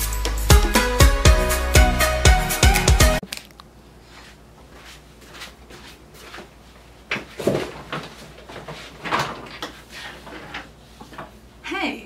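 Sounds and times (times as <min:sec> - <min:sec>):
swivel chair knocks and rustles: 0:07.1 - 0:11.4.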